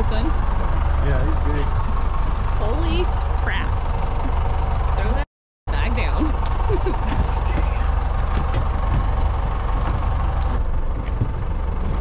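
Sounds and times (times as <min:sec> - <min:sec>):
boat engine idling: 0:00.0 - 0:12.0
light knocks of gear: 0:06.3 - 0:12.0.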